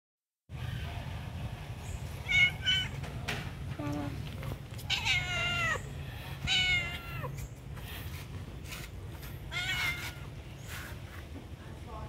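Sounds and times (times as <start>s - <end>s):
cat meowing: 2.2s - 3.0s, 4.8s - 7.4s, 9.5s - 10.3s.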